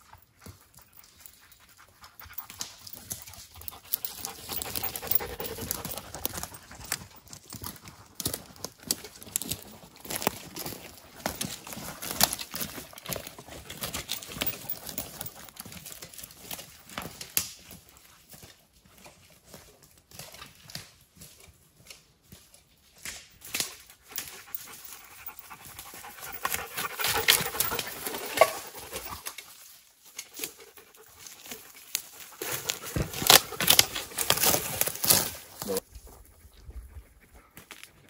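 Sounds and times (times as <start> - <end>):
dog panting: 0.8 - 9.6, 24.0 - 29.3.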